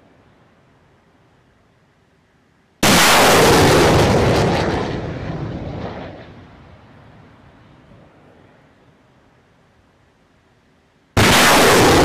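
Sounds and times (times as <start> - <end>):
rocket launch blast: 2.8 - 6.5, 11.2 - 12.0.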